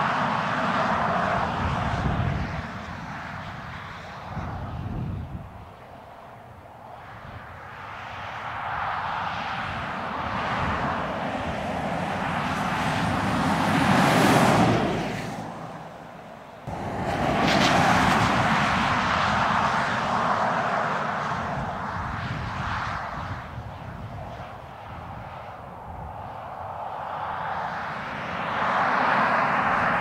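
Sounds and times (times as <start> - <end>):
car driving past on tarmac: 8.3 - 23.2, 26.4 - 30.0.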